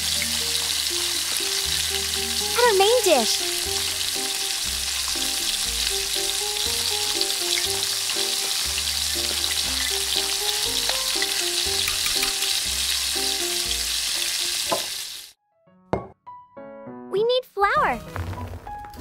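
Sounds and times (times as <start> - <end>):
hot oil sizzling: 0.0 - 15.4
metal spoon ticking against pan: 11.7 - 12.6.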